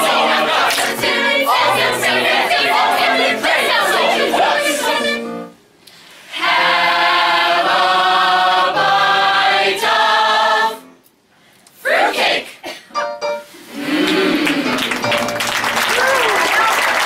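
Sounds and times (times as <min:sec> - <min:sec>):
choir singing a cappella: 0:00.0 - 0:05.6, 0:06.2 - 0:11.0, 0:11.8 - 0:12.6.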